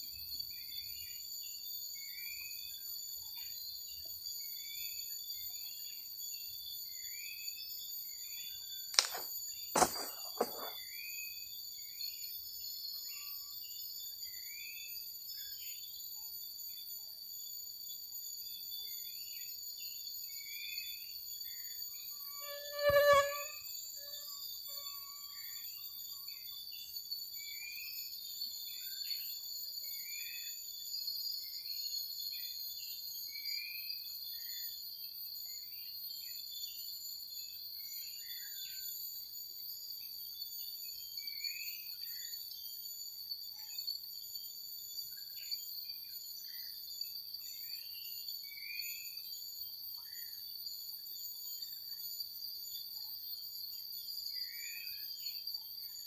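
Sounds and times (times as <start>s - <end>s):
insect chorus: 0.0s - 56.0s
short insect chirps: 6.9s - 14.7s, 20.8s - 27.5s.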